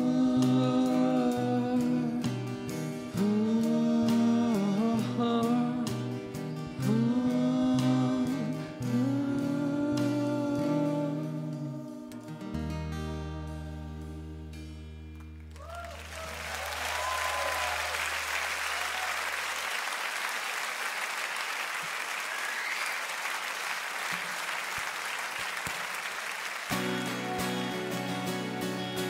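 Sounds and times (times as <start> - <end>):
whoops: 15.5 - 19.7, 22.2 - 23.1
audience applauding and cheering: 15.5 - 29.0.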